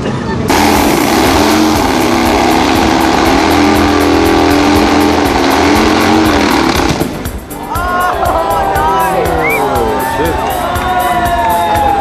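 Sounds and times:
motorcycle engine revving hard: 0:00.5 - 0:07.5.

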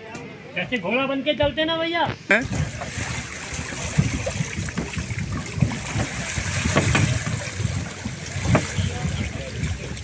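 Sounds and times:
water sloshing and splashing: 0:02.4 - 0:10.0.

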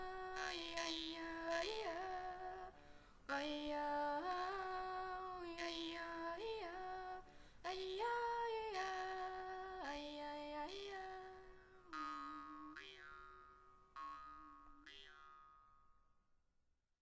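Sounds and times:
woman singing wordless melody: 0:00.0 - 0:13.0.

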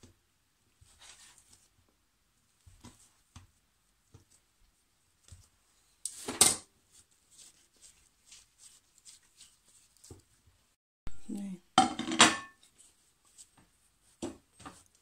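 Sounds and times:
hands patting dough: 0:00.0 - 0:10.8, 0:12.7 - 0:15.0
knife clattering on counter: 0:11.8 - 0:12.6.

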